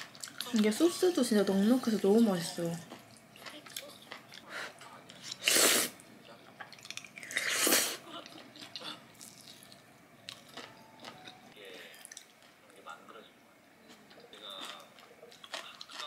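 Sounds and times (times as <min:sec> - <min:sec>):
chewing: 0:00.0 - 0:00.7, 0:02.9 - 0:05.5, 0:06.6 - 0:12.6, 0:13.8 - 0:16.0
noodles being slurped: 0:05.2 - 0:06.0.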